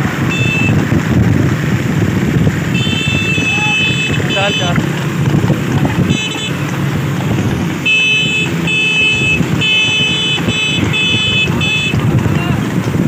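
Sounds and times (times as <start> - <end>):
vehicle engine and road rumble: 0.0 - 13.0
high-pitched horn blasts: 0.3 - 0.8, 2.7 - 4.8, 6.0 - 6.7, 7.8 - 12.0.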